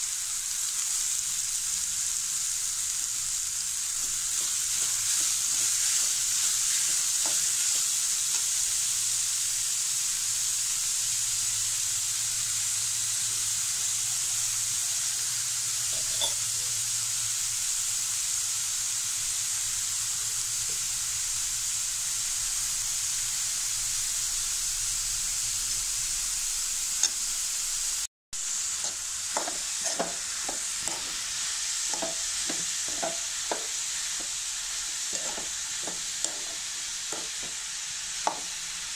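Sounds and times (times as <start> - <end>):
food sizzling in a pan: 0.0 - 38.9
metal spoon scraping a pan: 4.0 - 8.8, 15.8 - 16.6, 28.7 - 38.5.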